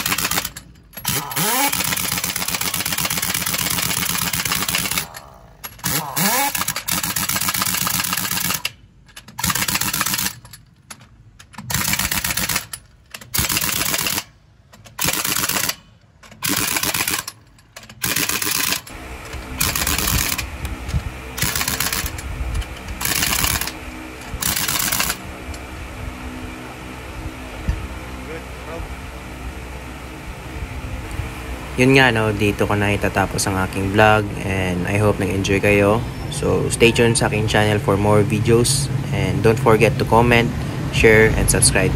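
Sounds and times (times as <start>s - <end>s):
pneumatic impact wrench bursts: 0.0s - 25.2s
steady low hum: 0.0s - 41.9s.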